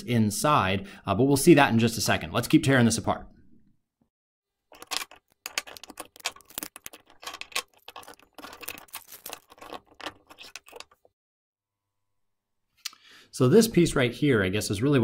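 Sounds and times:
plastic housing clicking and snapping: 4.8 - 10.9.

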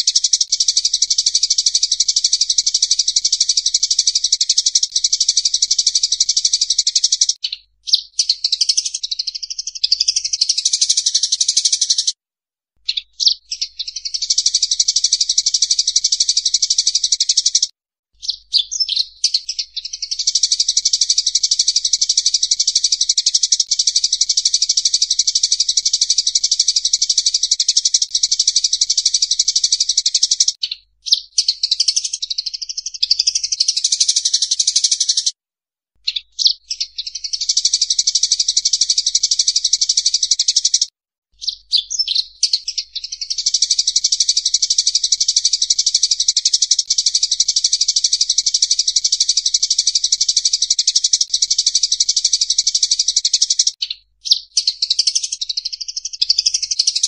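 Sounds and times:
sparrows chirping: 0.0 - 12.2, 12.8 - 35.3, 36.0 - 57.0.

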